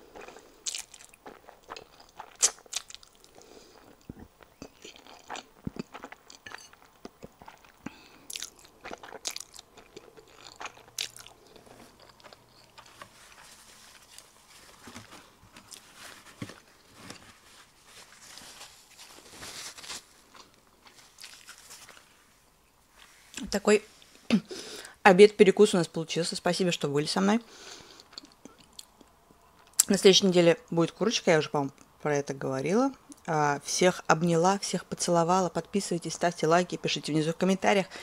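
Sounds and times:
person chewing: 0.0s - 14.4s, 20.2s - 22.2s, 27.9s - 29.9s.

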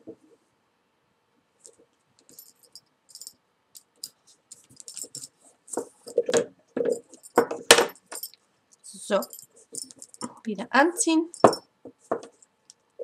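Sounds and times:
small metallic clinks: 2.2s - 5.4s, 6.9s - 10.4s, 11.3s - 11.7s
cord rustling and clicking: 4.3s - 10.3s.

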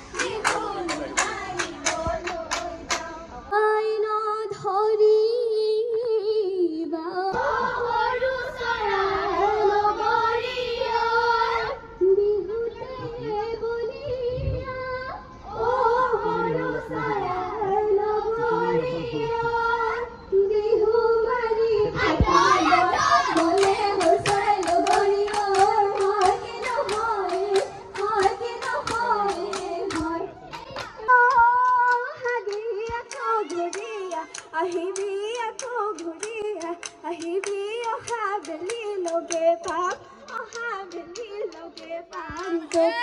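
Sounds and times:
rhythmic hand-clapping: 0.0s - 3.2s, 22.2s - 43.0s
women singing: 0.0s - 43.0s.

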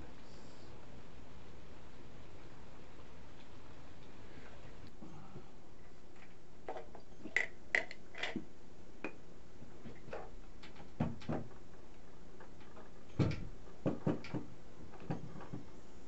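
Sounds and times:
dull knocks and thumps on wood: 13.2s - 15.7s.

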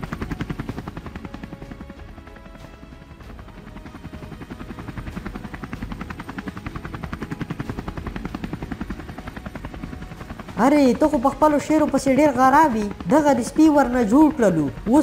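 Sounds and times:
helicopter rotor blades chopping: 0.0s - 15.0s.

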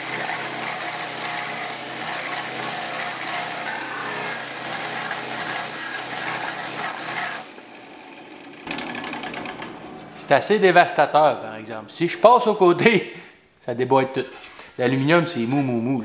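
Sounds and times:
sheet-metal machine running: 0.0s - 10.9s.

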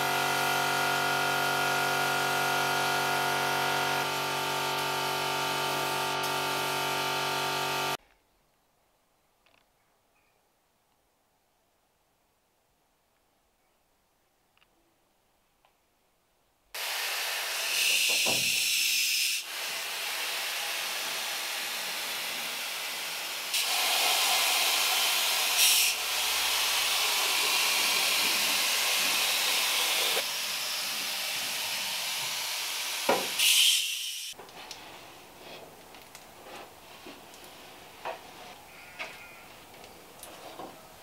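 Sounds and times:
air spraying hiss: 23.5s - 30.3s, 33.1s - 34.4s.

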